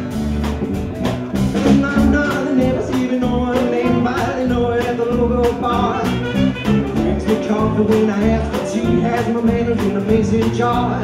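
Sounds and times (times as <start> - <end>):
acoustic guitar: 0.0 - 11.0
drums steady beat: 0.0 - 11.0
electric bass: 0.0 - 11.0
saxophone fill: 5.7 - 7.6.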